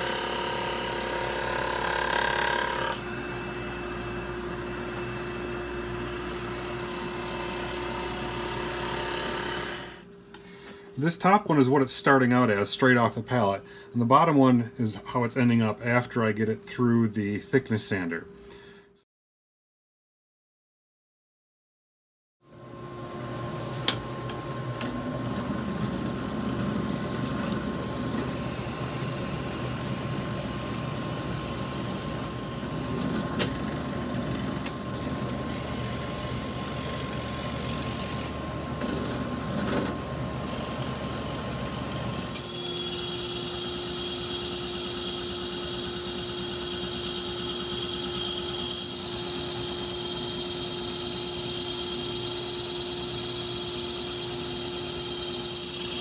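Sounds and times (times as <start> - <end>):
drill press boring wood: 0.0 - 3.1, 6.1 - 10.1, 35.3 - 56.0
band saw whining: 0.0 - 10.1, 39.6 - 56.0.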